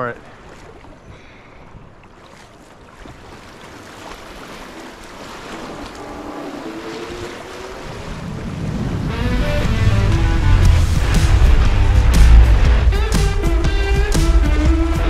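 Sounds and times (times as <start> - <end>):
rushing whitewater: 3.0 - 15.0
music: 9.0 - 15.0.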